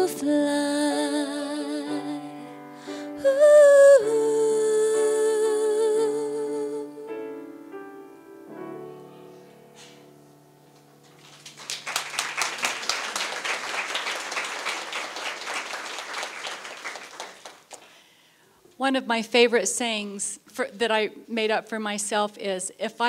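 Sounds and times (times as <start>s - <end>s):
grand piano chords: 0.0s - 12.5s
audience applauding: 11.1s - 18.0s.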